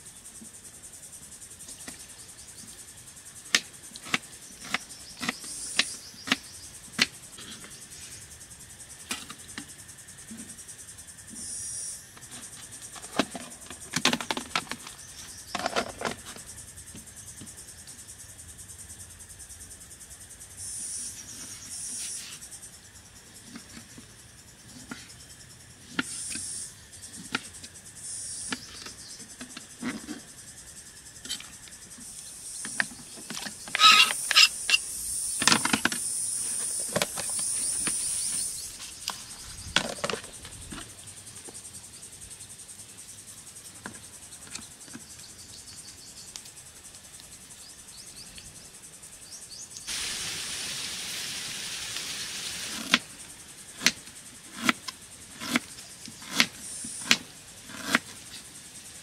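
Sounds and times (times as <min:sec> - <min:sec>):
insects singing: 0:00.0 - 0:59.0
outdoor ambience: 0:00.0 - 0:59.0
clicks and handling noises: 0:12.2 - 0:16.4.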